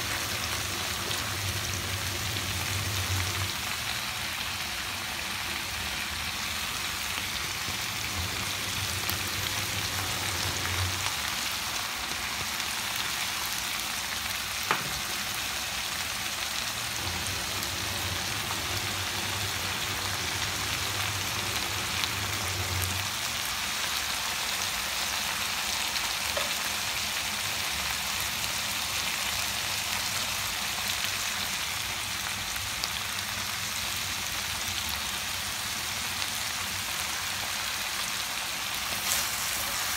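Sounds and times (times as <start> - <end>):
vegetables sizzling in a pan: 0.0 - 39.9.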